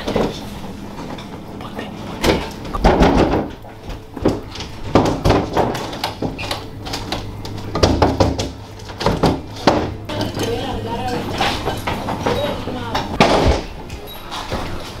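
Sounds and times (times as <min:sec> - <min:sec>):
heavy thumps on a door: 0:13.2 - 0:13.8.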